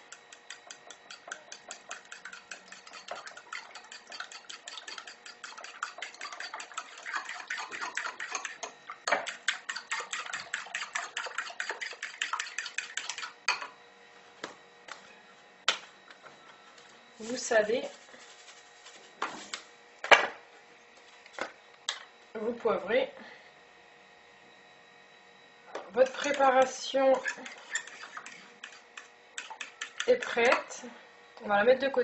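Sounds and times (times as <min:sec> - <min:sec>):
fork beating eggs in bowl: 0:00.0 - 0:13.8, 0:25.9 - 0:30.8.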